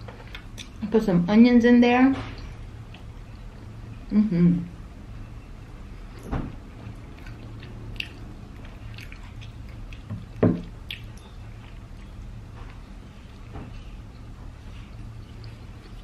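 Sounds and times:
wet chewing: 6.1 - 16.0.

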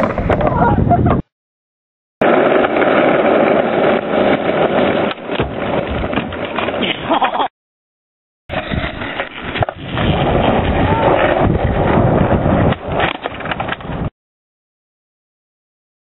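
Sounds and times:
skateboard wheels rolling on asphalt: 0.0 - 1.2, 2.2 - 7.4, 8.5 - 14.1
skateboard clattering: 2.2 - 7.4, 8.5 - 14.1
skateboard knocking: 2.2 - 7.4.

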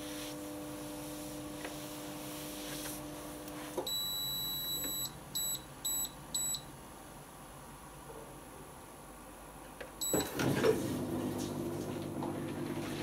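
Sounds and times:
control panel beeps: 3.9 - 6.6, 10.0 - 10.4
dishwasher buzzing: 10.0 - 13.0.

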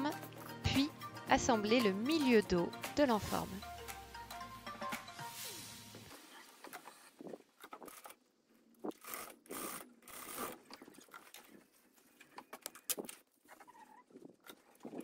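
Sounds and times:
sewing gear scraping and clicking: 6.7 - 11.6.

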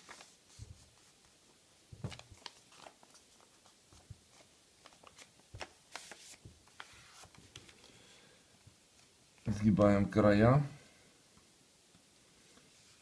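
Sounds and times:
paper rustling and crinkling: 0.0 - 1.4, 2.0 - 7.9.

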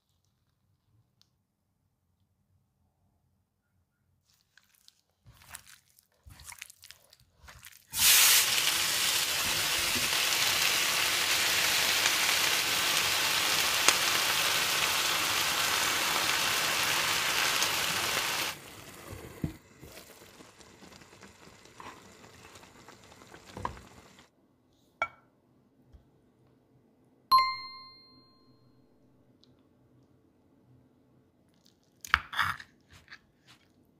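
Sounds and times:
meat sizzling in a frying pan: 7.9 - 19.2
bright ding: 27.3 - 28.7.

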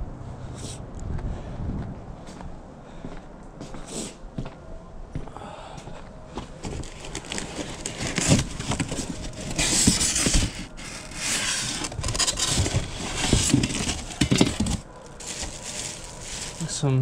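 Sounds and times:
scraping and rustling boxes: 6.6 - 16.8.

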